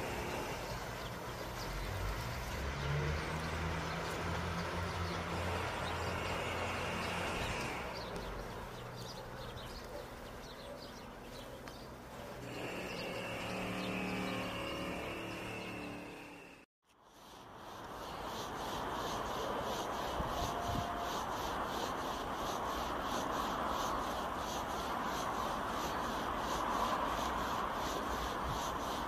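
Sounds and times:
diesel train engine hum: 0.0 - 10.0, 12.0 - 16.6.

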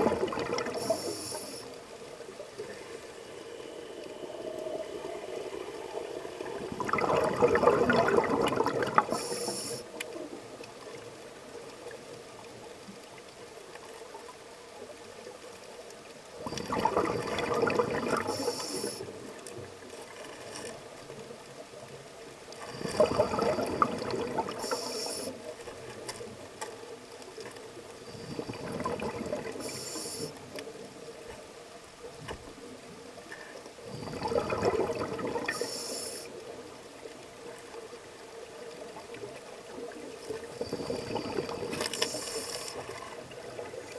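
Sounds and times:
scuba regulator breathing underwater: 0.0 - 1.7, 6.8 - 10.0, 16.5 - 19.2, 22.7 - 25.4, 28.1 - 30.4, 33.4 - 36.4, 40.3 - 43.2
faint steady hum: 0.0 - 43.9.

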